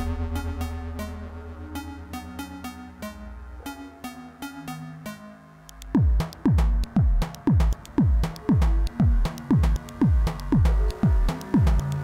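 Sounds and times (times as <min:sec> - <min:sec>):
synth notes: 0:00.0 - 0:12.0
light ticks: 0:05.7 - 0:06.5
deep kick drum: 0:06.0 - 0:12.0.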